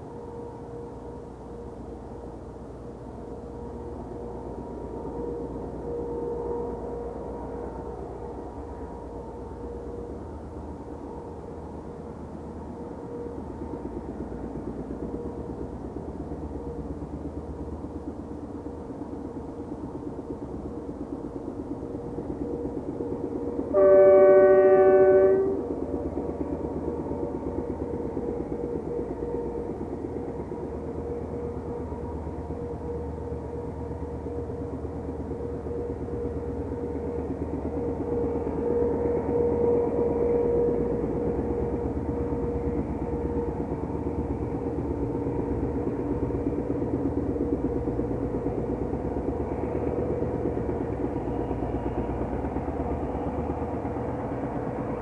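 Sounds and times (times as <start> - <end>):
locomotive engine drone: 0.0 - 55.0
train horn blast: 23.7 - 25.8.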